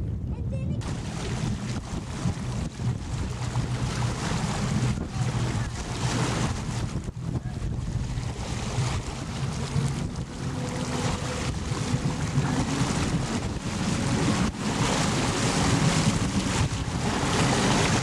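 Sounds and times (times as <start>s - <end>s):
motorboat engine running: 0.0s - 18.0s
water rushing past boat: 0.0s - 18.0s
wind buffeting microphone: 0.0s - 18.0s.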